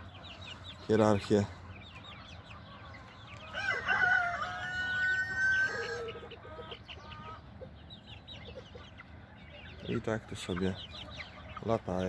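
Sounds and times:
chicks peeping: 0.0 - 12.0
rooster crowing: 3.5 - 6.3.

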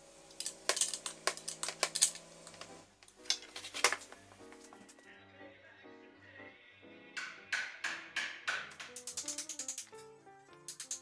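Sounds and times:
background music: 2.0 - 11.0
ratchet wrench clicking: 8.9 - 9.9, 10.7 - 11.0.

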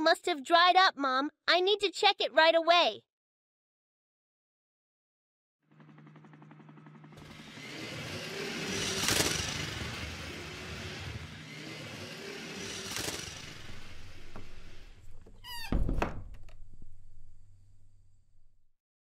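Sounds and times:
cartoon toy motor noise: 7.2 - 14.3.

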